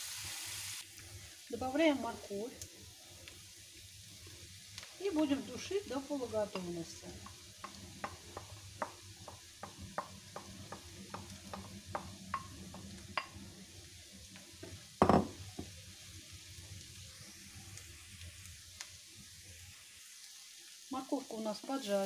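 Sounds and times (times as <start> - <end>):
vegetables sizzling in oil: 0.0 - 22.0
wooden spatula stirring: 6.4 - 13.6.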